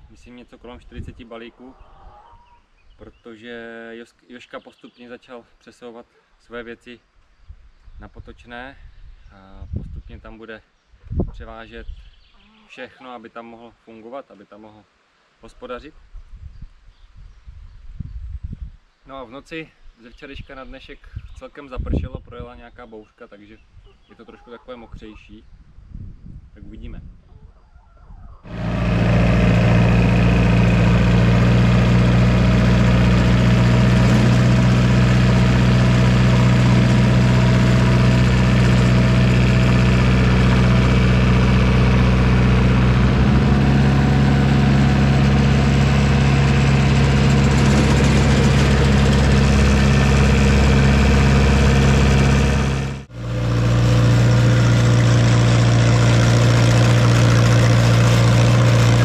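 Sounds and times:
tractor engine running: 28.5 - 59.0.

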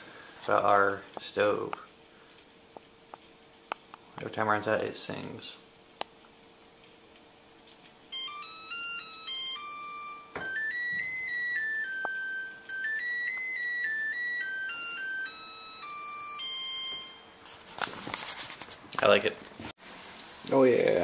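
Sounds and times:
electronic beeping melody: 8.1 - 17.4.

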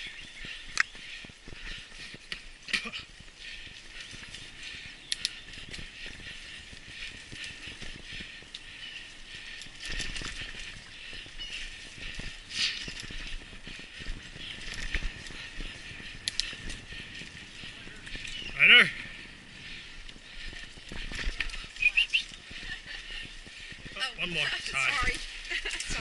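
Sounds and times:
bike rattling over dirt: 0.0 - 26.0.

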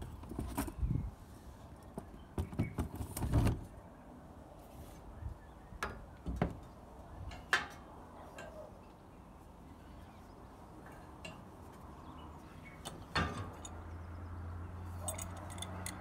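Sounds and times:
metal parts clinking and knocking: 12.8 - 13.8, 14.9 - 16.0.

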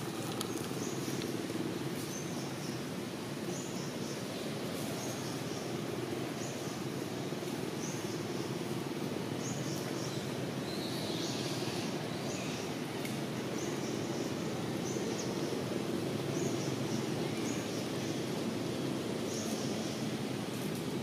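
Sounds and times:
birds chirping: 0.0 - 1.4.

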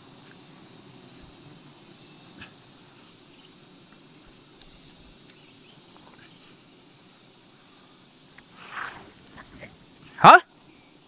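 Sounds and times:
bees buzzing: 0.0 - 11.0
loud scrape: 8.5 - 9.4.

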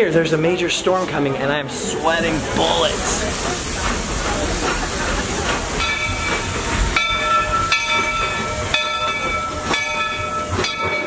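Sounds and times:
steam locomotive hissing: 0.3 - 11.0
bell ringing: 5.8 - 11.0.

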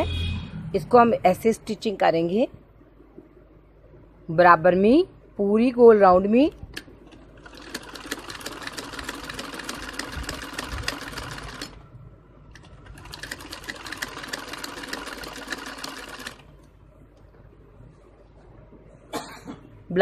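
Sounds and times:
sewing machine needle ticking: 12.6 - 16.4.

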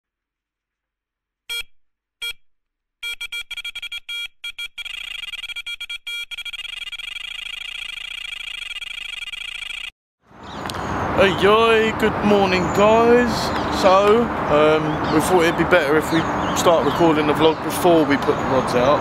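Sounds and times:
electronic bite alarm bleeps: 1.5 - 9.9.

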